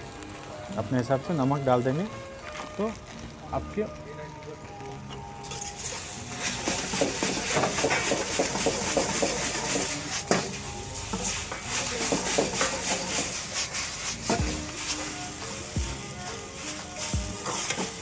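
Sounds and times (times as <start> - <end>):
metal ladle scraping wok: 5.4 - 18.0
noodles sizzling in a wok: 5.4 - 18.0.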